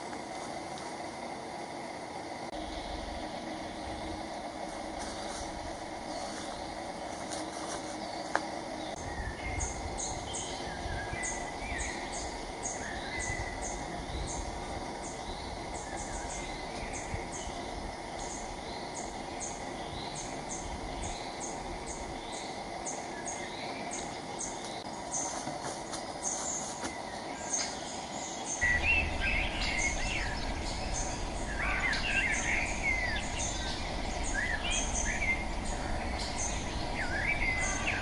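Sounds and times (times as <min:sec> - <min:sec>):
steady background hiss: 0:00.0 - 0:38.0
small birds chirping: 0:02.6 - 0:38.0
rising bird call: 0:28.6 - 0:38.0.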